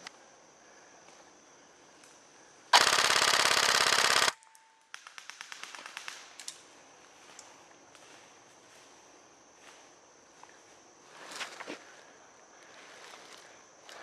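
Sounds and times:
airsoft gun firing full auto: 2.7s - 4.4s
distant airsoft fire: 2.7s - 6.3s.

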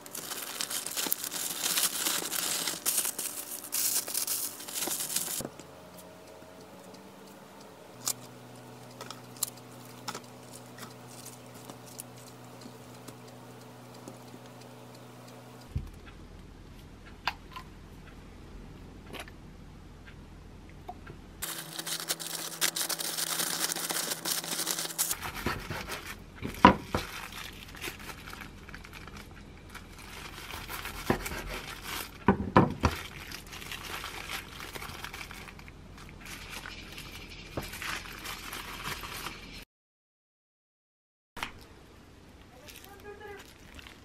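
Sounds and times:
parchment paper crinkling: 0.0s - 5.5s, 8.0s - 13.2s, 21.4s - 39.6s, 42.6s - 44.0s.

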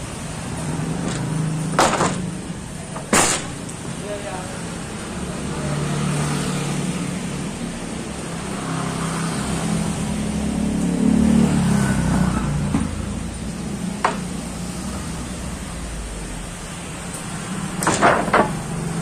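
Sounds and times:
vehicle engine revving: 5.0s - 17.9s.

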